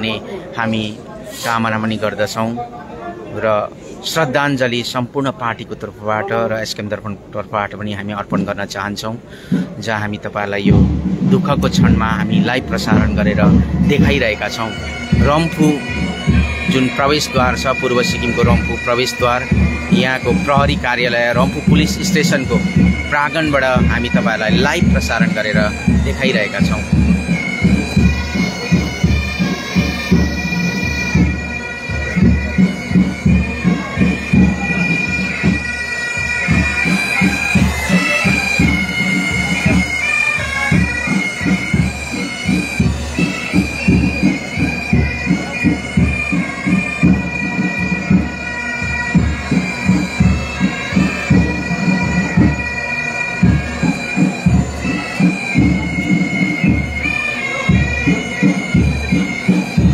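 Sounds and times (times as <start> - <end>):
steady drumbeat: 10.6 - 59.9
bagpipes melody: 10.7 - 59.9.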